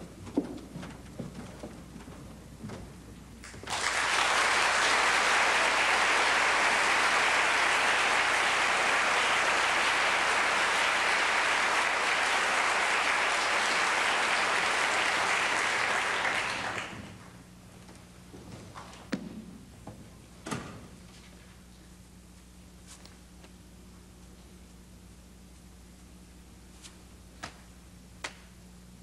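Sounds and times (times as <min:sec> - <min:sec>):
audience applauding: 0:03.4 - 0:17.4.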